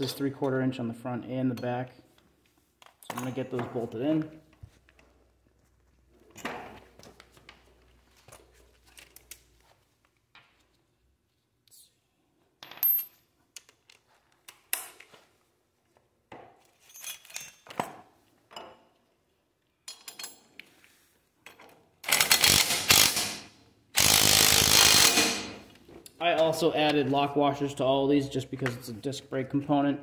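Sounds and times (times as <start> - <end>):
metal sockets and bolts clinking: 2.8 - 3.6, 16.8 - 17.8, 19.8 - 20.6.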